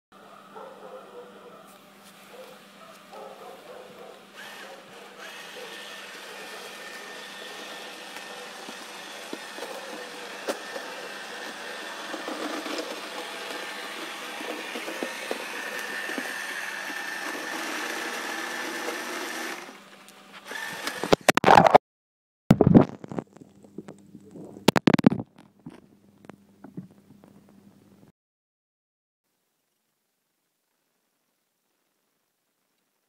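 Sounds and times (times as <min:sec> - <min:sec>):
small electric motor whirring: 0:04.0 - 0:21.3.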